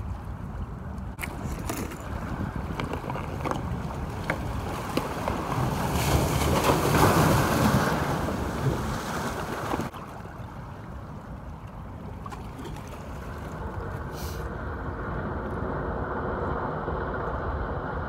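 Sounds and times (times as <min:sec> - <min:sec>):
wind buffeting microphone: 0:00.0 - 0:09.9
water washing at shoreline: 0:00.0 - 0:18.0.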